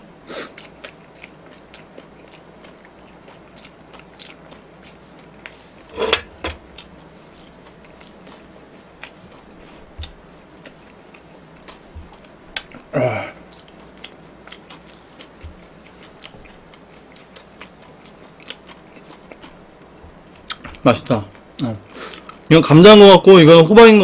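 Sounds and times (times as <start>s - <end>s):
chewing and crunching food: 0.0s - 5.9s, 6.6s - 22.5s.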